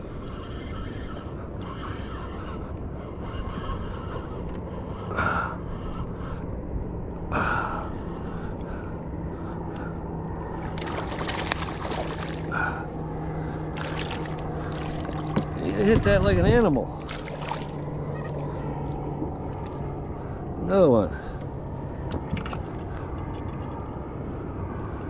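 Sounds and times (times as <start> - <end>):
wind and water noise: 0.0 - 25.0
fish splashing: 10.7 - 15.6, 17.0 - 18.5.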